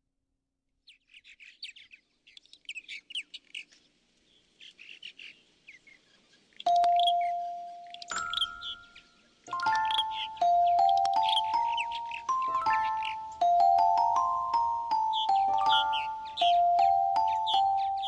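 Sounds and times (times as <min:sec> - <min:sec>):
birds chirping: 0:00.9 - 0:18.0
bell-like chime ringing: 0:06.7 - 0:18.0.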